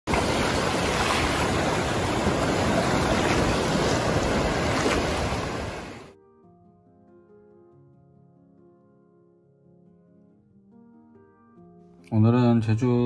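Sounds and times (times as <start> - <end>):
sea waves breaking over rocks: 0.1 - 6.1.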